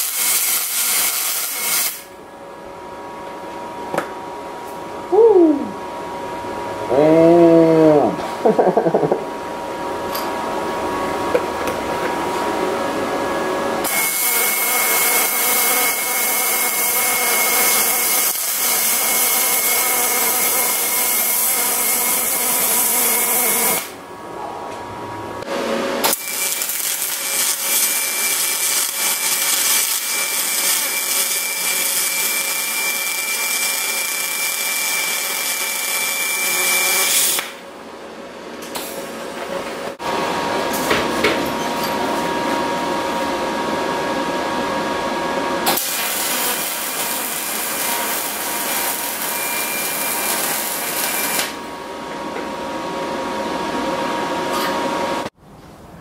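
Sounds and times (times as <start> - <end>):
welding arc hissing with high whine: 0.0 - 2.2, 13.8 - 24.1, 25.8 - 37.6, 45.6 - 51.9.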